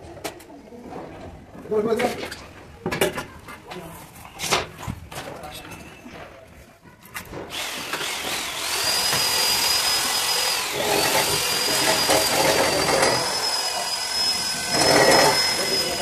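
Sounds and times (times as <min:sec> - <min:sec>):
power tool motor whine: 0:07.5 - 0:16.0.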